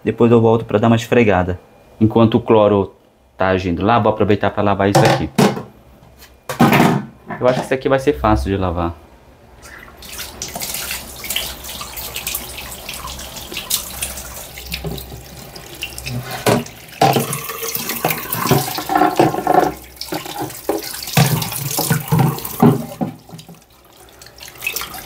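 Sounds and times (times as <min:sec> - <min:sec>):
tap water running into sink: 0:10.0 - 0:25.0.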